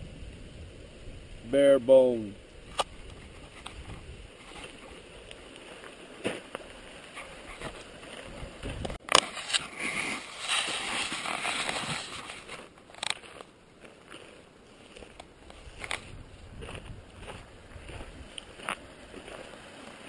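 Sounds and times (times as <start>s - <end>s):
rustling and handling noise: 2.8s - 20.0s.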